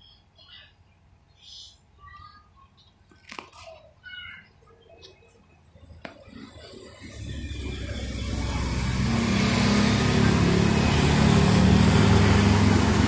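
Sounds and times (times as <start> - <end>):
vehicle engine approaching: 6.3 - 13.0.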